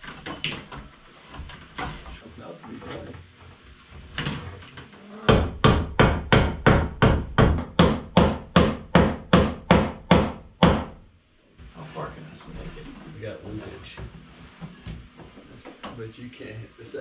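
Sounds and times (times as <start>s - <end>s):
hammer striking wood: 5.3s - 11.0s.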